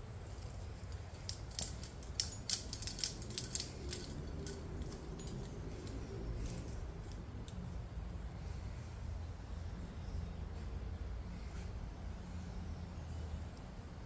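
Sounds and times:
metal climbing hardware clinking: 0:00.2 - 0:07.6.

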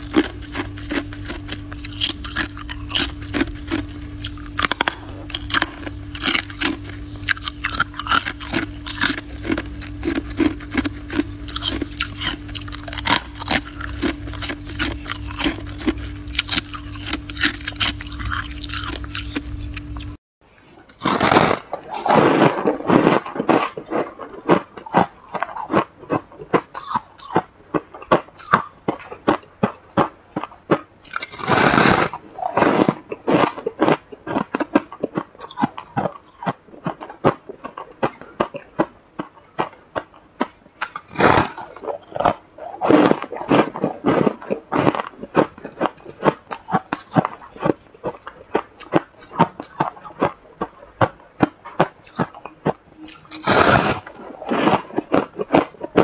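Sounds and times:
frost being chewed: 0:00.0 - 0:20.2, 0:20.8 - 0:56.0
loud bites: 0:00.0 - 0:20.2, 0:20.9 - 0:25.8.

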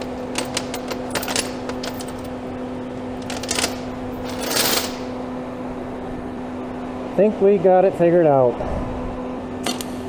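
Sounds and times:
chain links clinking: 0:00.0 - 0:02.3, 0:03.3 - 0:05.1
steady low hum: 0:00.0 - 0:10.0.

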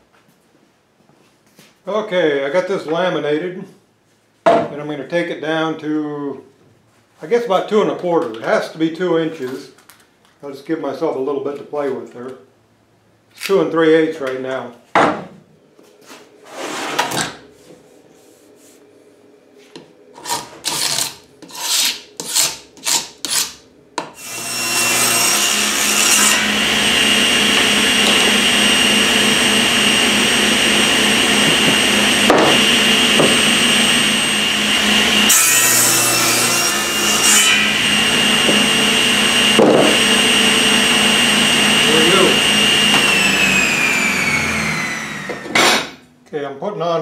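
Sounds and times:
wood scraping: 0:15.9 - 0:18.9, 0:19.6 - 0:23.6
table saw whining: 0:24.1 - 0:46.0.

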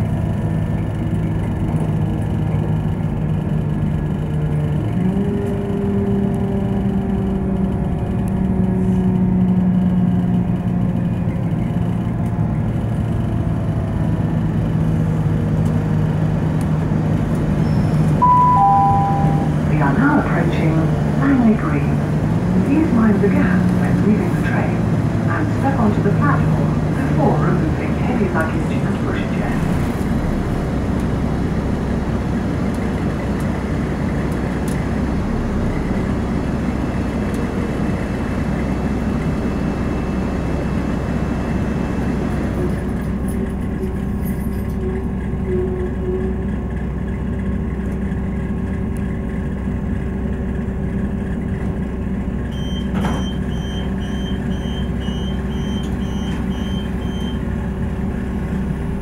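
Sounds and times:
diesel engine idling: 0:00.0 - 0:59.0
train running rumble: 0:00.0 - 0:59.0
door warning beeps: 0:18.2 - 0:19.6, 0:52.5 - 0:57.4.

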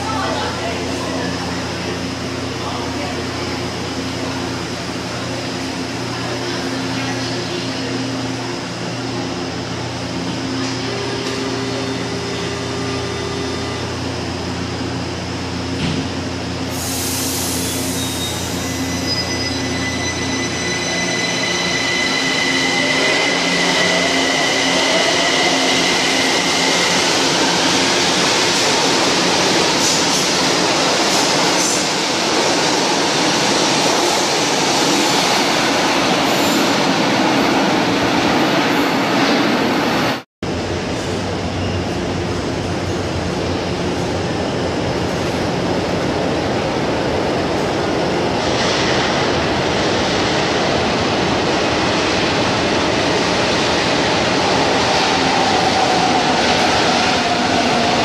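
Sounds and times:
train humming: 0:00.0 - 0:58.0
train running on track: 0:00.0 - 0:58.0.

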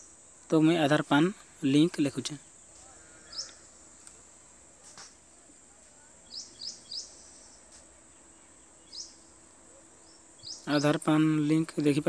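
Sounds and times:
faint high hiss: 0:00.0 - 0:12.0
small bird chirping: 0:02.1 - 0:04.2, 0:06.2 - 0:12.0.

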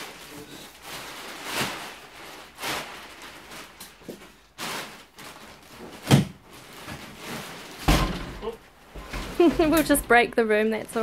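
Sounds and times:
plastic wrapping crinkling: 0:00.0 - 0:11.0.

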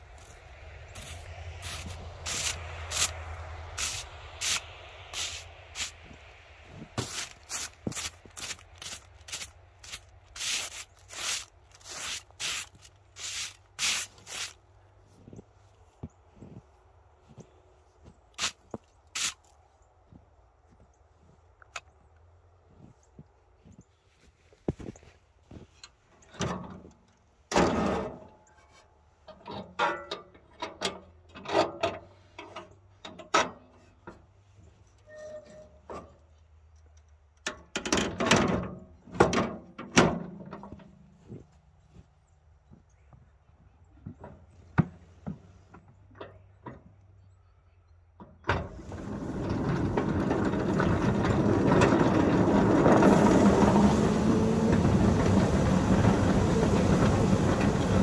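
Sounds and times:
broom sweeping snow: 0:00.1 - 0:14.6, 0:18.4 - 0:19.5
boots crunching through snow: 0:06.8 - 0:14.6.

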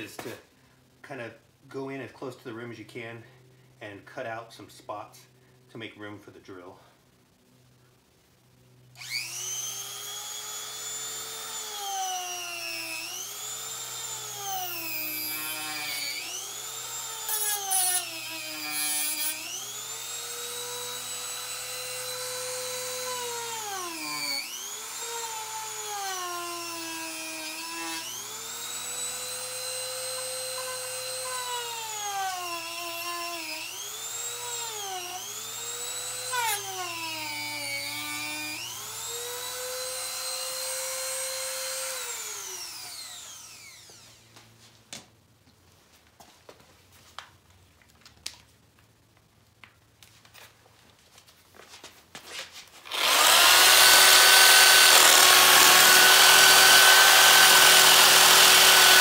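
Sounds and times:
rotary tool whining: 0:08.9 - 0:44.4, 0:52.8 - 0:59.0
rotary tool grinding rubber: 0:15.2 - 0:44.0, 0:52.8 - 0:59.0.

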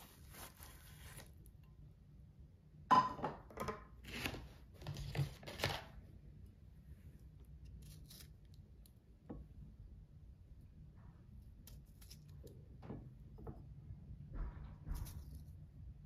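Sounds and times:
scraping rustling handling sounds: 0:00.0 - 0:01.4.

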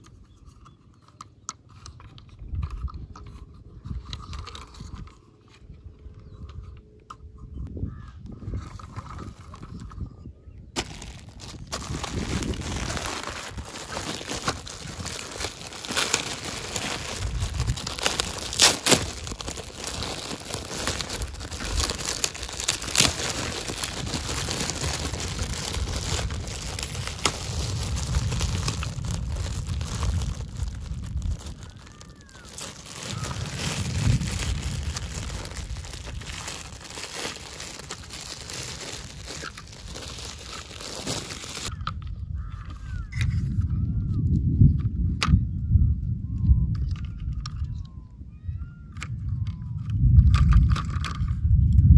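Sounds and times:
plastic bag crinkling: 0:10.8 - 0:41.7.

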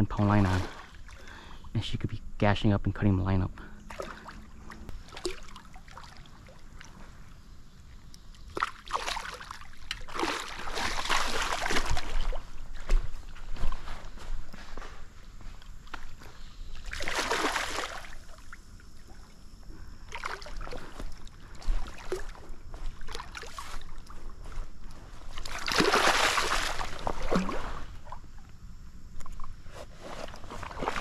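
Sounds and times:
fish splashing in shallow water: 0:03.9 - 0:07.3, 0:07.9 - 0:12.6, 0:16.7 - 0:24.0, 0:25.3 - 0:28.4.

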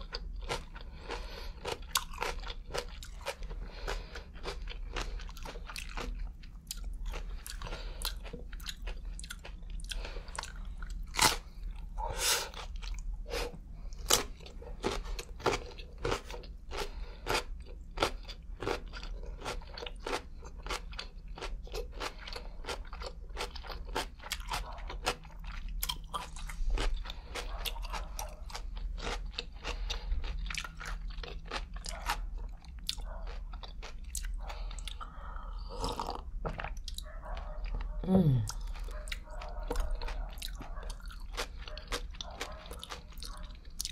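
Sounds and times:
crunching and chewing pickle: 0:00.0 - 0:43.9.

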